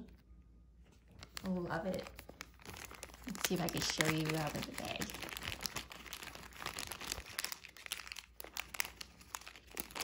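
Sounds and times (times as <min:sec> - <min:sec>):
plastic bag crinkling: 0:00.9 - 0:10.0.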